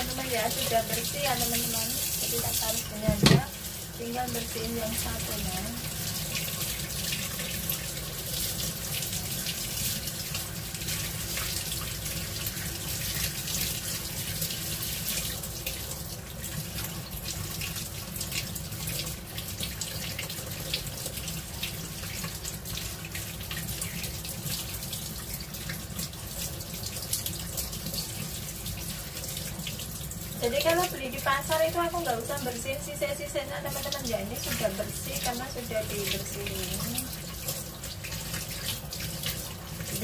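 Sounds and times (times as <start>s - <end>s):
tap running into steel sink: 3.0s - 3.6s.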